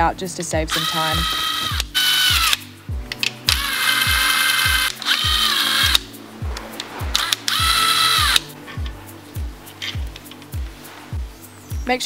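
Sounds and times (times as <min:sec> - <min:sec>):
impact wrench whining: 0:00.7 - 0:02.6, 0:03.5 - 0:06.0, 0:07.2 - 0:08.5.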